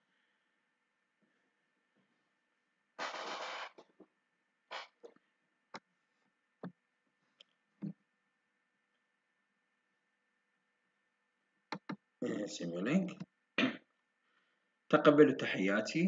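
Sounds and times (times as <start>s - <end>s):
computer mouse clicks: 11.7s - 12.0s.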